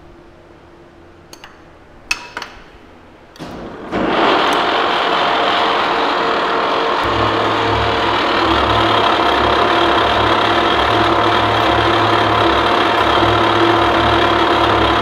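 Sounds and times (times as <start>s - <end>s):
milling machine spindle running: 3.7s - 15.0s.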